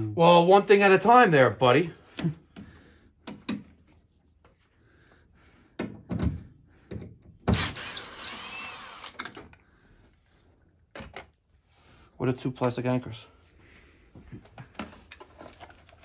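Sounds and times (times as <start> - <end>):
cordless screw gun running: 7.7 - 9.2.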